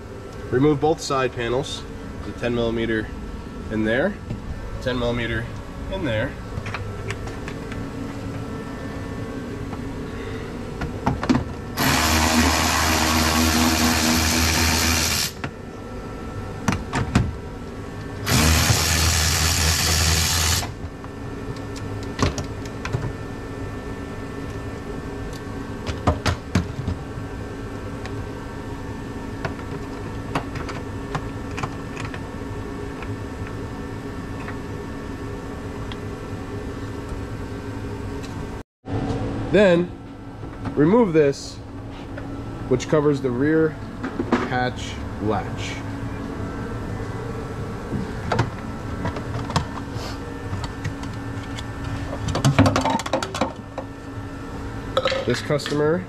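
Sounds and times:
steady background hum: 0.0s - 56.0s
cordless power tool running: 11.8s - 15.4s, 18.2s - 20.8s.

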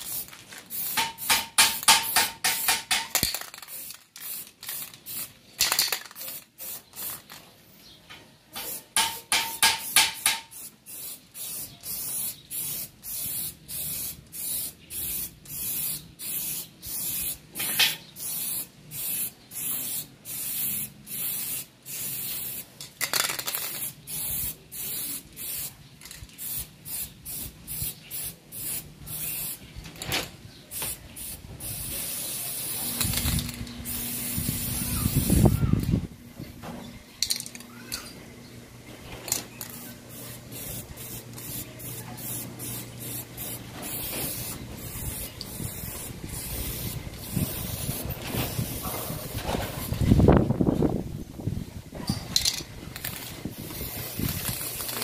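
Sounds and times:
spray paint bursts: 0.0s - 7.4s, 8.6s - 29.7s, 30.7s - 36.0s, 39.3s - 50.5s, 52.0s - 55.0s.

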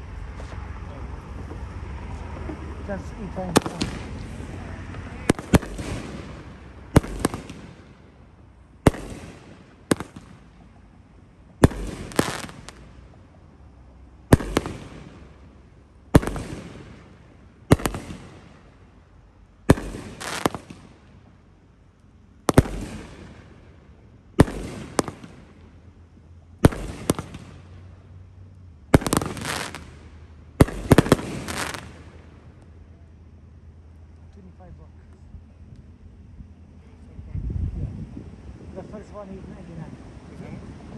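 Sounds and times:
fireworks bangs and crackle: 2.4s - 13.4s, 14.2s - 18.9s, 19.6s - 21.4s, 22.4s - 28.1s, 28.8s - 32.6s.

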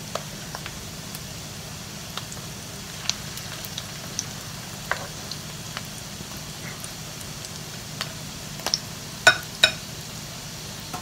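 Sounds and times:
patties sizzling in hot oil: 0.0s - 11.0s.

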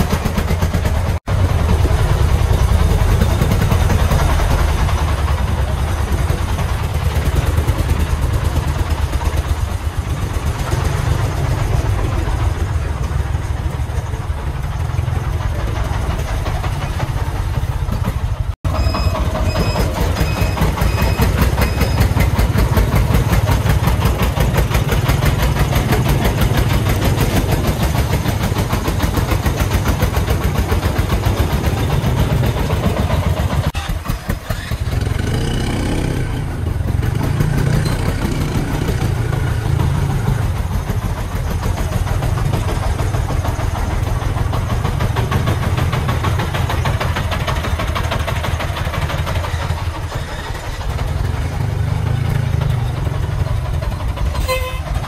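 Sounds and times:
diesel engine chugging: 0.0s - 55.0s.

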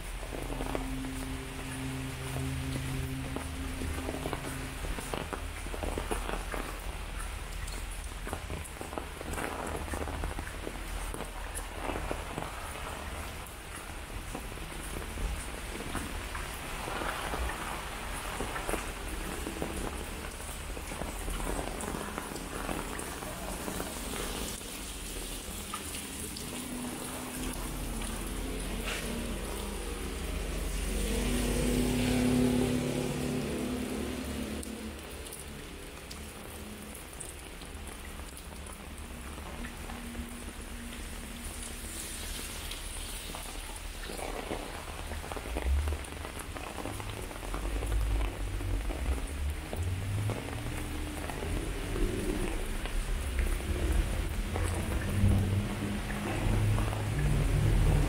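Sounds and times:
rain on wet pavement: 0.0s - 58.0s
low hum: 0.1s - 7.1s.

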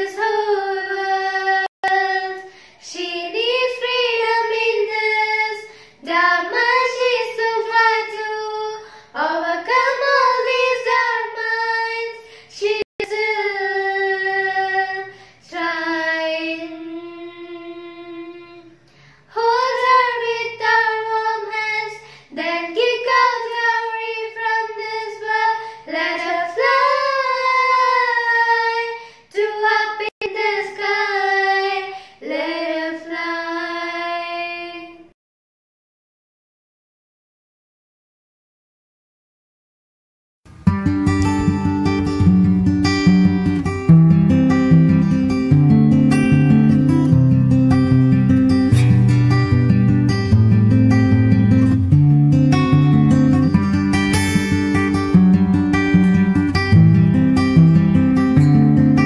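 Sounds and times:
girls singing together: 0.0s - 35.1s.

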